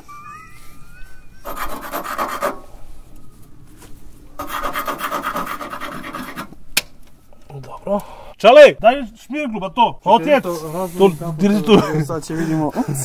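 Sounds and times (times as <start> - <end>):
plastic scraping against metal file: 4.4 - 6.6.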